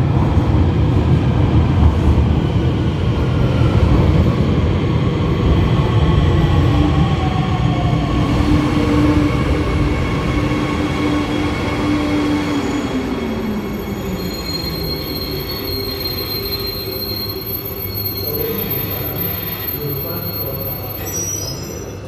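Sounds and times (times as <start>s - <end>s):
train rumble: 0.0s - 21.1s
high brake squeal: 12.6s - 22.0s.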